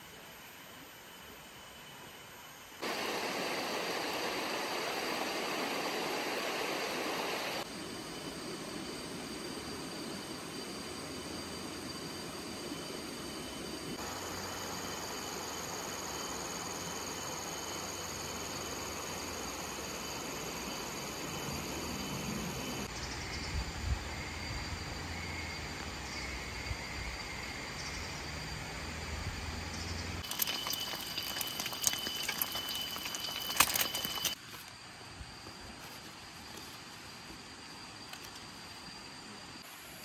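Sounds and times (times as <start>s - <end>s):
high-pitched insect drone: 0.0s - 34.4s
river flowing: 2.8s - 7.6s
egg sizzling in a pan: 30.2s - 34.4s.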